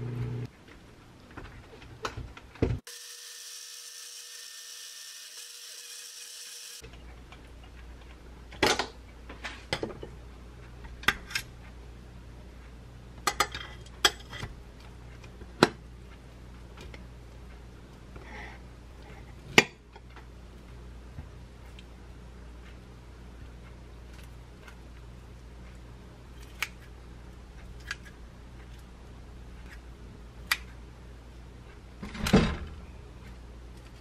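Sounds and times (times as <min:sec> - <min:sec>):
bottle blender running: 0:02.9 - 0:06.8.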